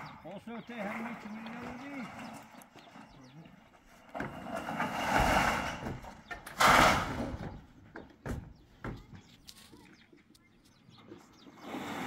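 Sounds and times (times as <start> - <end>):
metal roofing sheet rattling: 4.2 - 7.7.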